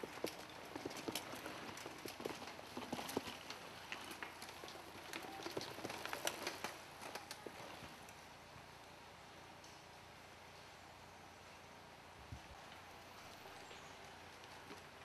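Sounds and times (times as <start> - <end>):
tyres crackling over leaves: 0.0 - 8.2
mountain bikes riding past: 0.0 - 15.0.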